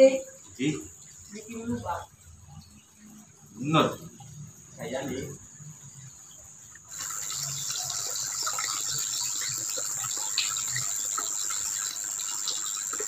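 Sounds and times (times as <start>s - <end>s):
running water rushing: 0.0s - 13.0s
high-pitched insect buzz: 2.7s - 13.0s.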